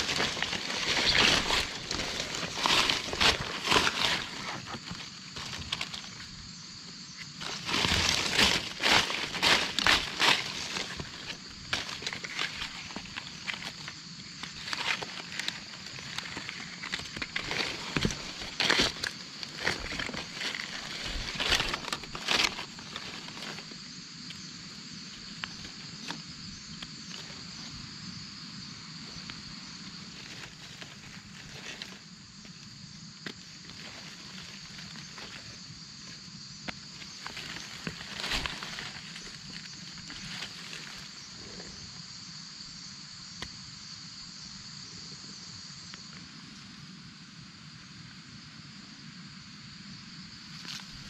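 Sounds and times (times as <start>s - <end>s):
dry leaves crunching: 0.0s - 6.4s, 7.2s - 23.8s, 30.1s - 32.6s, 33.2s - 41.6s, 50.6s - 51.0s
high-pitched insect drone: 0.0s - 51.0s.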